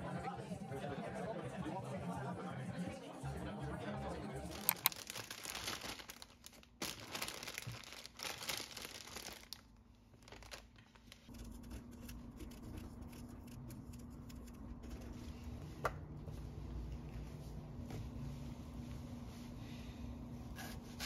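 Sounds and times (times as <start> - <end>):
crinkling and rustling handling noise: 4.5 - 11.6
steady low hum: 11.2 - 21.0.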